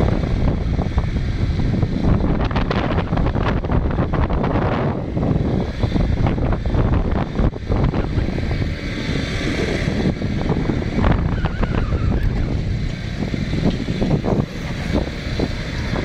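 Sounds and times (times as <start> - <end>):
motorcycle engine running: 0.0 - 16.0
wind buffeting microphone: 0.0 - 16.0.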